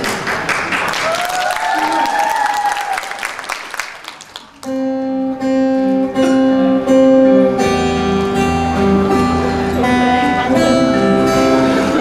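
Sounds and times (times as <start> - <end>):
people clapping: 0.0 - 4.8
acoustic guitar: 4.6 - 12.0.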